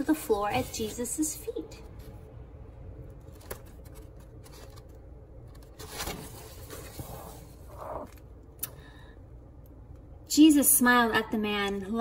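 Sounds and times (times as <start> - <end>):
paper rustle: 3.1 - 8.2
book page turning: 3.1 - 8.3.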